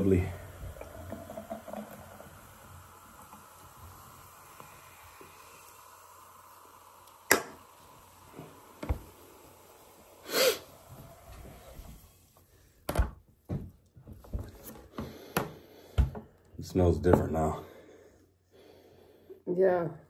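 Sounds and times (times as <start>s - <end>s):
cola fizzing in a glass: 0.0s - 12.3s.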